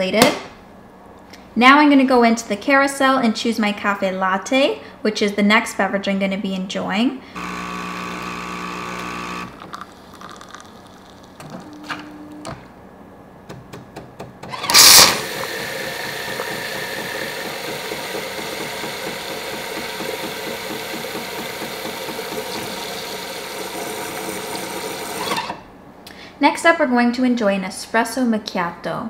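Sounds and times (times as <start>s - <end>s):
machine hum: 7.4s - 13.6s, 14.4s - 25.6s
milk frother steam burst: 14.6s - 25.4s
steam and milk hissing and sputtering: 14.7s - 25.2s.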